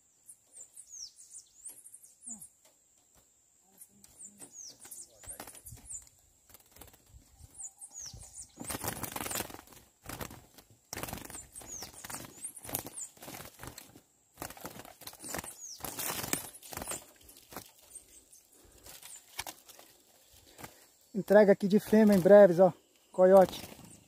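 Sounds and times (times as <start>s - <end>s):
high downward-sweeping bird calls: 0.0s - 2.6s, 7.4s - 10.2s, 11.0s - 13.8s, 15.1s - 19.4s
bird wings fluttering against cage: 4.3s - 18.0s, 18.6s - 20.9s, 21.7s - 22.6s, 23.3s - 24.0s.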